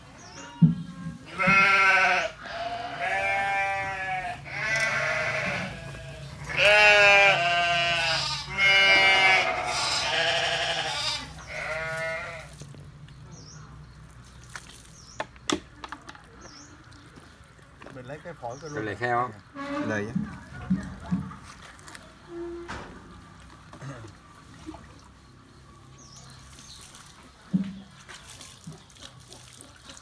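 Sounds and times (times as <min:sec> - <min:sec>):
pig squealing: 0:06.6 - 0:11.3.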